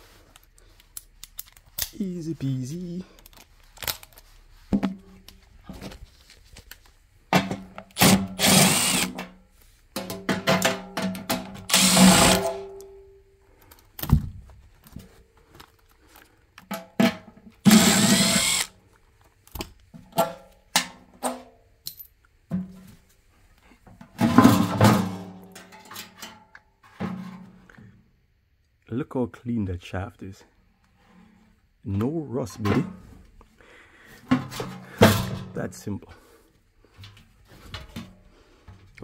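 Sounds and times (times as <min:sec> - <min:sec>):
cordless drill motor whining: 0:08.0 - 0:09.1, 0:11.7 - 0:12.4, 0:17.7 - 0:18.7
tools clicking and knocking: 0:10.0 - 0:12.9.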